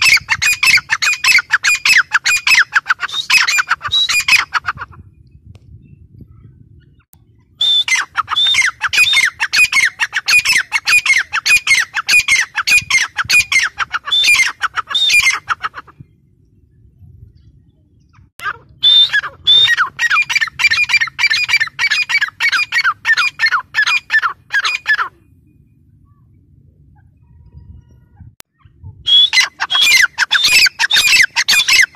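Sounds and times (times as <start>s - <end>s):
bird rapid repeated calls: 0.0s - 5.0s, 7.7s - 15.9s, 18.1s - 25.2s, 28.5s - 31.9s.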